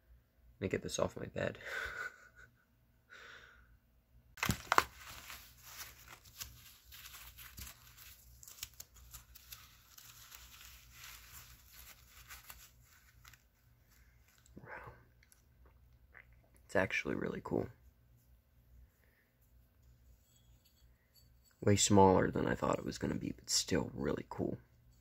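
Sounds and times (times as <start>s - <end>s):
plastic wrap crinkling and tearing: 4.4s - 14.5s.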